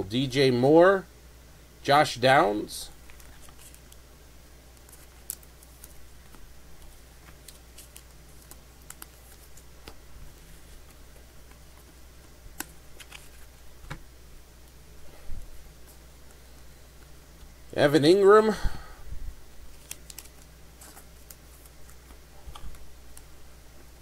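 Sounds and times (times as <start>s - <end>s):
low steady hum: 0.0s - 24.0s
cards flipped by hand: 3.0s - 4.0s, 4.7s - 14.0s, 19.7s - 23.3s.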